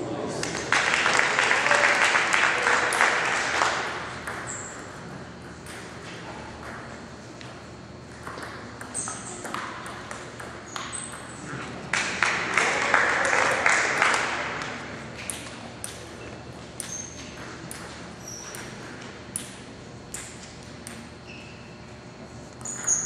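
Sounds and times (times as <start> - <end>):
audience applause: 0.4 - 4.0, 11.9 - 14.8
short squeaks: 21.2 - 21.8, 22.6 - 23.0.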